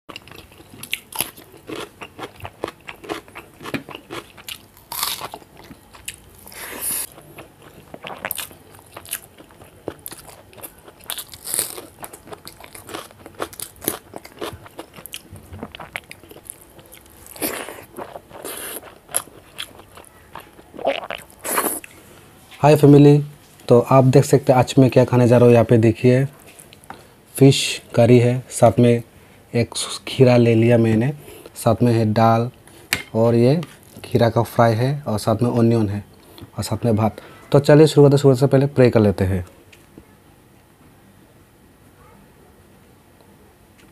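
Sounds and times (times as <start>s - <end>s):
cucumber crunching: 0.1s - 22.0s
man chewing: 0.1s - 22.1s.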